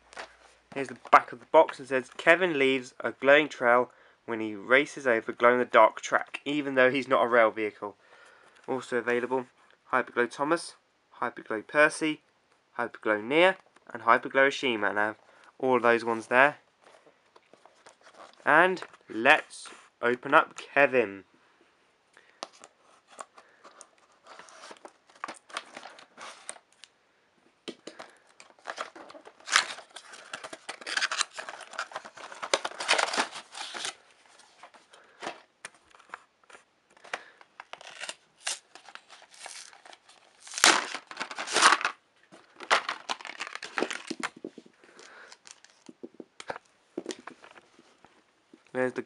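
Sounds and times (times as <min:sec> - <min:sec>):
cardboard and packaging tearing: 0:28.6 - 0:34.0, 0:37.6 - 0:42.0, 0:42.6 - 0:44.2.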